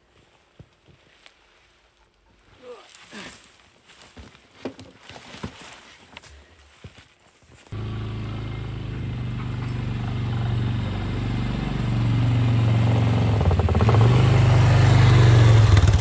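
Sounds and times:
quad engine passing: 7.8s - 16.0s.

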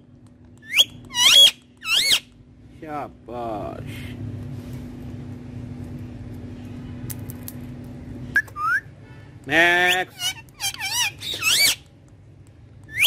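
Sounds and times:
steady low hum: 0.0s - 13.0s
parakeet whistling: 0.6s - 2.3s, 9.9s - 11.8s.

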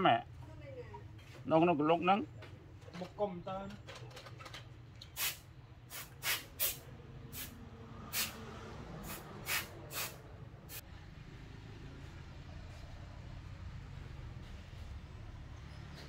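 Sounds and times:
short sharp hissing bursts: 5.2s - 8.4s, 9.0s - 10.8s.

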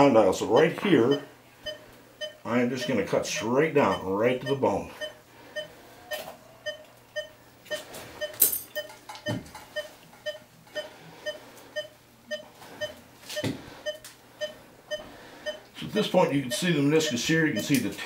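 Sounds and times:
patient monitor beeping: 0.0s - 18.0s
surgical instruments clinking: 8.2s - 10.4s.

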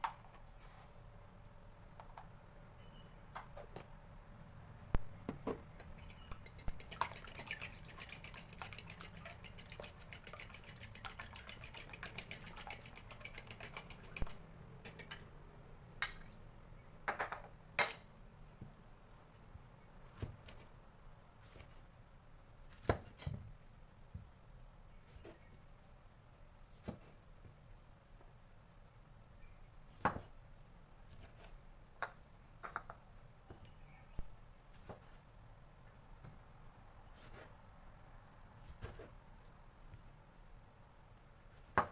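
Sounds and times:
utensils tapping and knocking: 5.3s - 15.3s
fork beating eggs in bowl: 5.7s - 15.3s.

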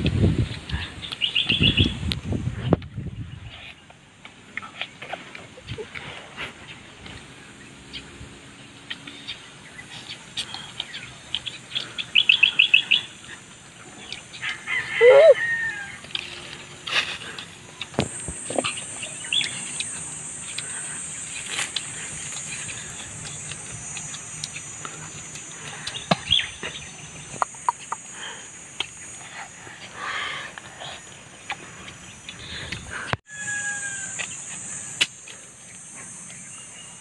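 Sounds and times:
chickens clucking: 8.8s - 29.2s
high-pitched drone: 9.9s - 16.9s, 17.5s - 37.0s.

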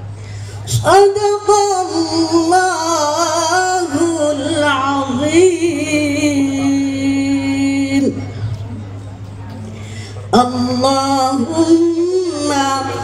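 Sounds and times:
woman chanting over loudspeaker: 0.7s - 8.6s, 10.3s - 13.0s.

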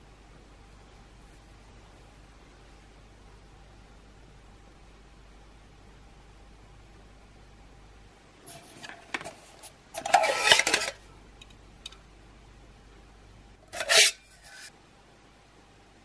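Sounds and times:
metal mugs scraping together: 8.5s - 11.0s, 13.7s - 14.7s.

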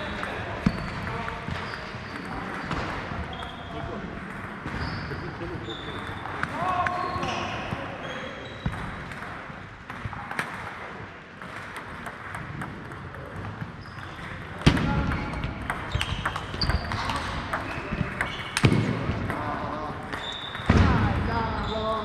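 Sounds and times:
table tennis balls clicking: 0.0s - 4.8s, 8.6s - 20.8s.

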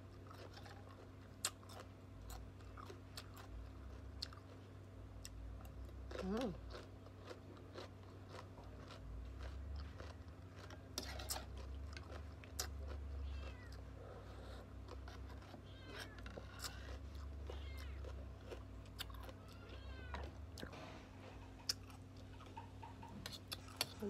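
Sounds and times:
cucumber being chewed: 0.0s - 24.0s
cat meowing: 13.1s - 13.9s, 15.5s - 16.8s, 17.4s - 18.2s, 19.3s - 20.4s.

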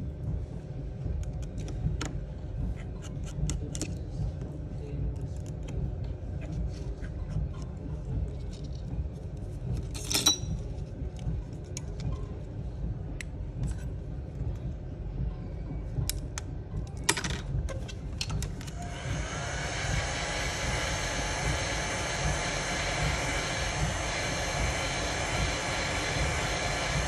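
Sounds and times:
steady low rumble: 0.0s - 27.0s
heat gun blowing hiss: 18.8s - 27.0s.

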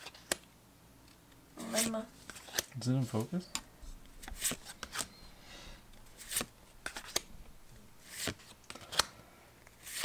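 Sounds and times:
cards flicked by hand: 6.2s - 7.3s.

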